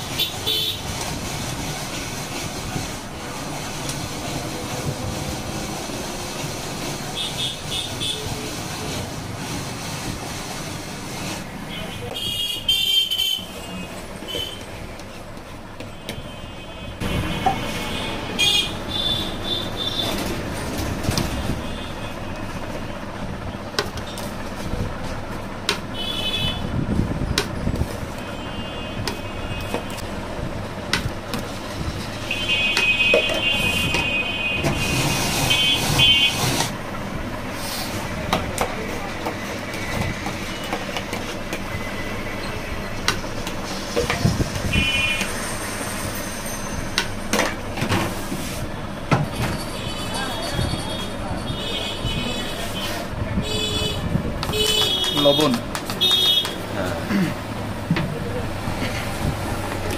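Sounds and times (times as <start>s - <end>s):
street traffic: 0.0s - 59.9s.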